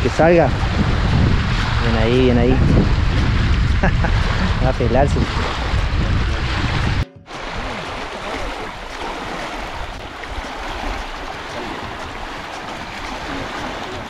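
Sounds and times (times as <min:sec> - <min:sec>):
wind rumbling on microphone: 0:00.0 - 0:14.0
waves lapping on pebbles: 0:04.2 - 0:14.0.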